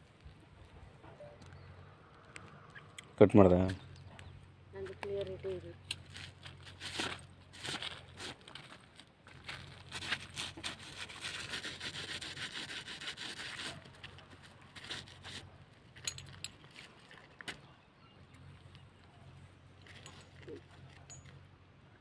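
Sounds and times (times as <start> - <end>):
footsteps crunching on dry ground: 6.0 - 11.2.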